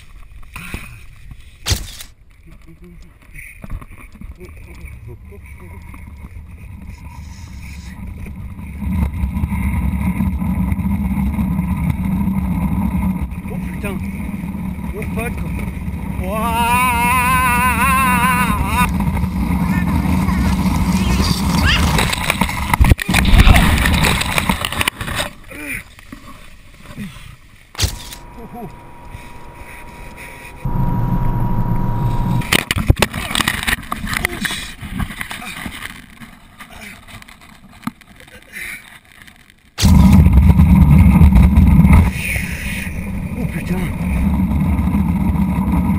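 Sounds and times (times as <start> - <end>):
rustling of corn stalks: 0.0 - 30.6, 32.4 - 40.1
sharp thumps and crackling: 1.6 - 2.7, 8.1 - 16.3, 18.6 - 25.3, 27.7 - 36.4, 39.2 - 42.2
tyres rumbling on asphalt road: 8.0 - 25.0, 39.8 - 45.9.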